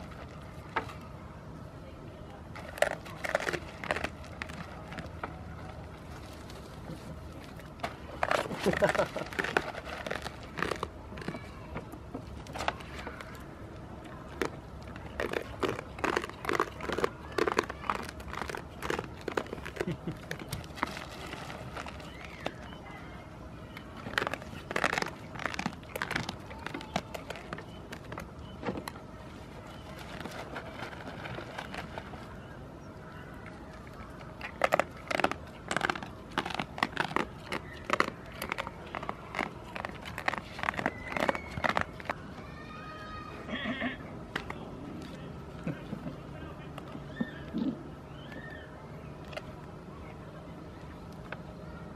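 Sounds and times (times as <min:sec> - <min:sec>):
goats chewing food: 0:00.0 - 0:51.6
crinkling: 0:02.5 - 0:23.0, 0:23.8 - 0:42.4.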